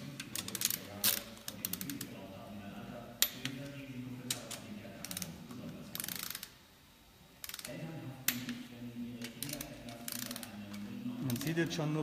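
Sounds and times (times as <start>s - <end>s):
torque wrench clicking: 5.9s - 6.6s, 7.4s - 7.7s, 9.2s - 10.5s.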